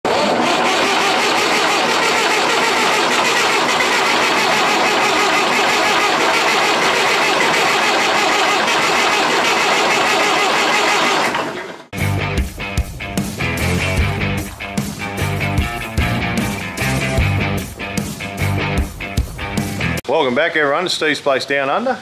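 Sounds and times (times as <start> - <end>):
diesel engine running: 0.0 - 17.8
rock music: 11.9 - 20.0.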